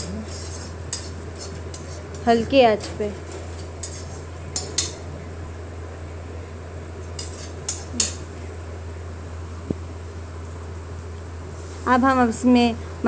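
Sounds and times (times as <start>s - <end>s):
spatula scraping metal pan: 0.0s - 4.7s, 7.2s - 7.8s.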